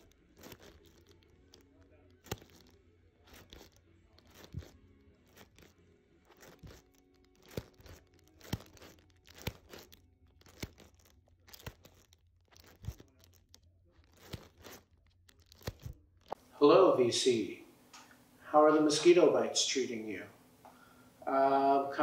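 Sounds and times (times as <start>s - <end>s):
sleeves rustling: 0.0s - 16.6s.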